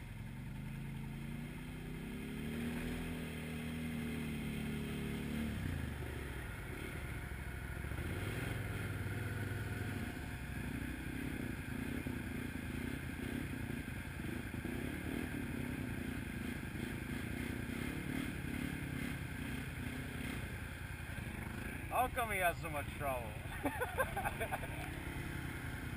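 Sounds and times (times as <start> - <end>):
atv engine running slowly: 0.0 - 25.9
second atv passing: 12.6 - 25.9.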